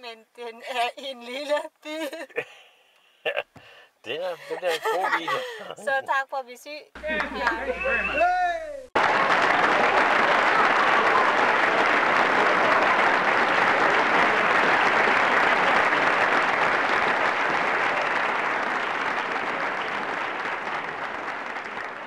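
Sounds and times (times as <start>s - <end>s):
crowd applause: 7.0s - 22.0s.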